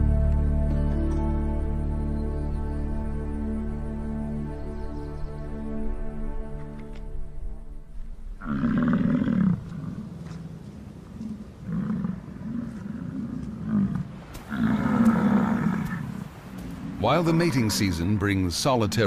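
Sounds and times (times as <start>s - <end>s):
soft music: 0.0s - 8.6s.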